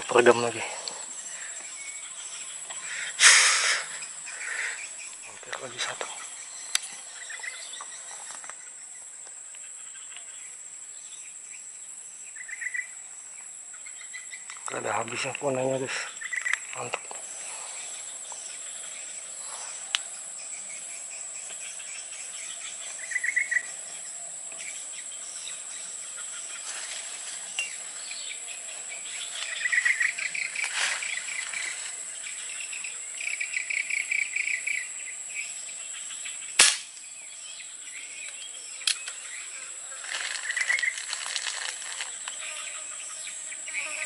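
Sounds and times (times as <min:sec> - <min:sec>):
insects droning: 0:00.0 - 0:44.0
rapid chirping trills: 0:27.6 - 0:39.7
sharp crack: 0:36.6 - 0:37.1.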